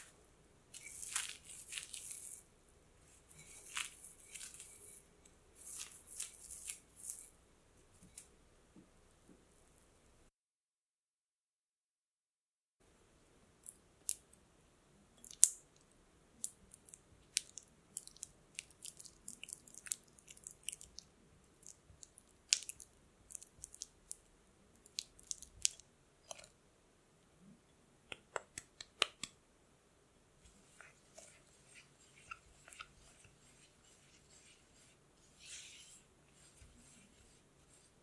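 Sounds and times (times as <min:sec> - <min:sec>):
spatula squishing butter in glass bowl: 0:00.0 - 0:07.3, 0:30.4 - 0:38.0.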